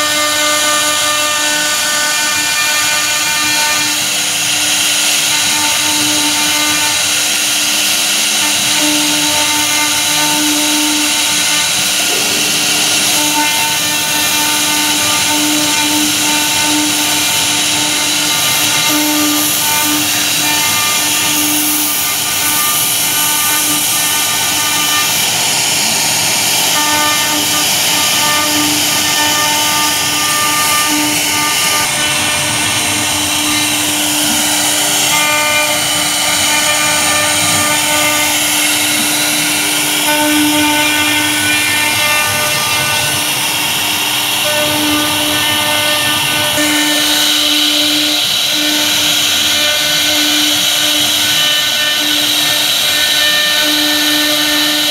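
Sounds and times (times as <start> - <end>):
router spindle high whine: 0.0 - 54.9
low hum: 11.8 - 15.2.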